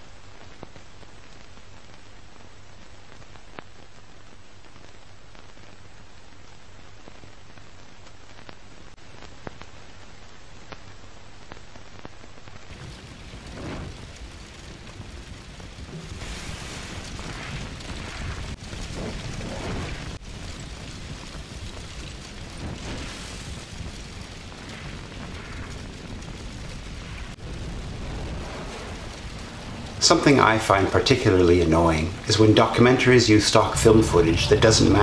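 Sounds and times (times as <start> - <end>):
steady hiss: 0.0 - 35.0
low rumbling: 12.7 - 35.0
muffled explosion-like booms: 12.7 - 35.0.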